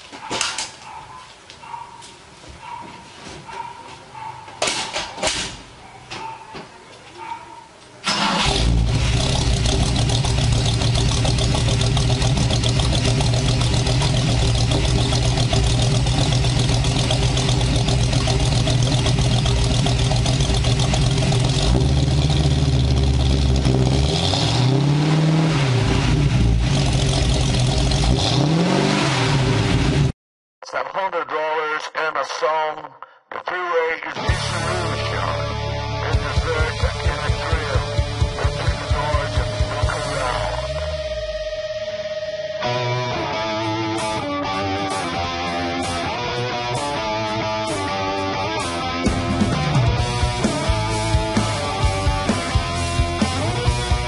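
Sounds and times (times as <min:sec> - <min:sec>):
car engine starting and idling: 0:08.0 - 0:30.1, 0:34.3 - 0:54.0
engine revving: 0:08.1 - 0:30.1, 0:34.3 - 0:54.0.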